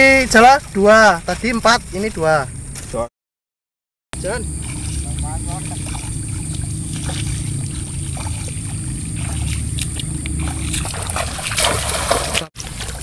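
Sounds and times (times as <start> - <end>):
footsteps wading through water: 0.1 - 3.0, 4.2 - 13.0
low rumble: 4.2 - 12.4
light splashes: 4.2 - 13.0.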